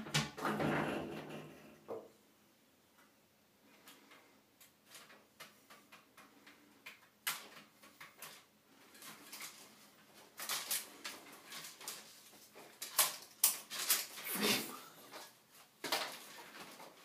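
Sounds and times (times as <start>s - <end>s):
window blind slats rattling: 0.0s - 1.9s, 4.0s - 14.4s.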